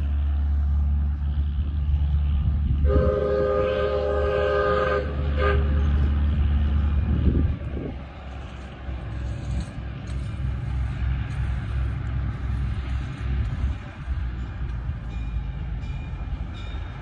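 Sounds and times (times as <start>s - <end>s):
diesel locomotive rumbling: 0.0s - 17.0s
locomotive whistle blast: 2.8s - 5.8s.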